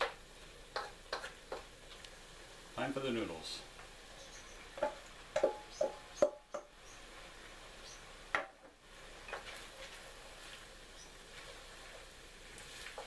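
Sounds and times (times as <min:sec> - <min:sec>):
wooden spatula scraping in wok: 0:08.9 - 0:13.0.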